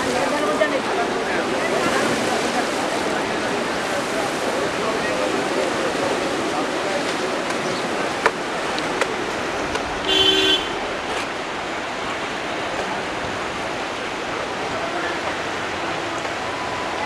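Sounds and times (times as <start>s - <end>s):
floodwater rushing through spillway: 0.0s - 17.0s
short horn toot: 10.0s - 10.8s.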